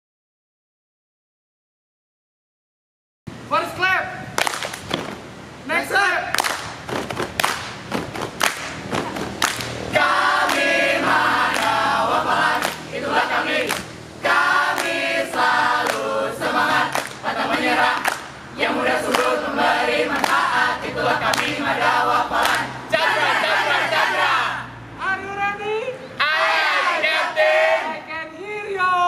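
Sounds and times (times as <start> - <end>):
group singing a rhythmic cheer: 9.5 - 24.8, 26.2 - 28.0.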